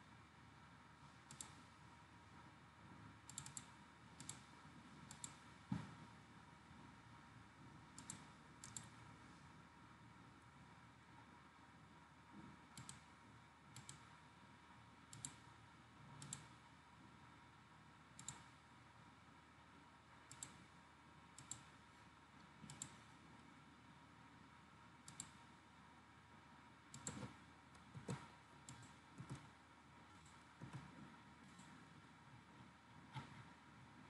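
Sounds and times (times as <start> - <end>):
faint background noise: 0.0 - 34.0
computer mouse clicks: 1.2 - 1.7, 3.2 - 5.4, 8.0 - 9.0, 12.7 - 13.1, 13.7 - 14.2, 15.1 - 15.5, 16.2 - 16.6, 18.2 - 18.6, 20.3 - 20.7, 21.4 - 21.7, 22.4 - 23.5, 25.0 - 25.5, 26.9 - 29.5, 30.1 - 31.8.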